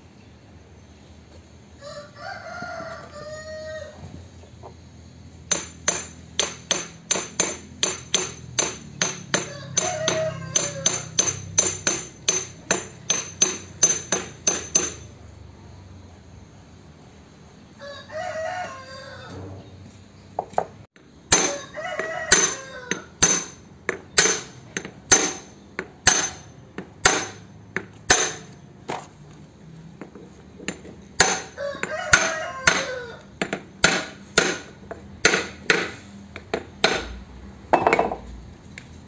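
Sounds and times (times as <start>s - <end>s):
distant rooster crowing: 1.8s - 4.4s, 9.1s - 12.0s, 17.7s - 19.8s, 20.4s - 23.5s, 31.2s - 33.4s.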